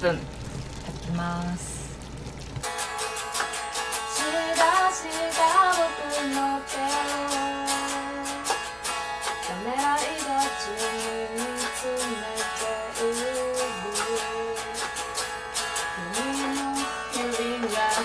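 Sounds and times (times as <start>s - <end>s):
electric guitar strumming: 2.6s - 18.0s
woman singing: 4.1s - 8.6s, 9.3s - 15.0s, 15.9s - 18.0s.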